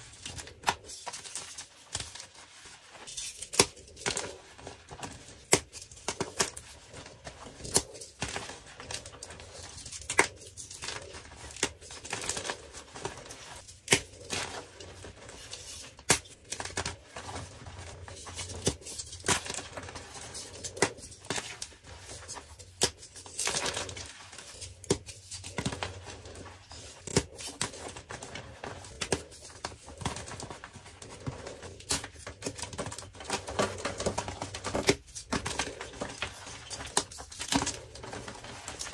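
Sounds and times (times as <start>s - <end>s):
chalk blocks crunching by hand: 0.0s - 38.9s.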